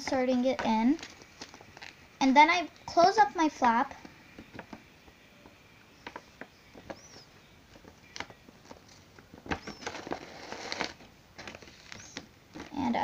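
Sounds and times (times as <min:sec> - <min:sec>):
plastic packaging clicks and rustles: 0:07.7 - 0:12.8.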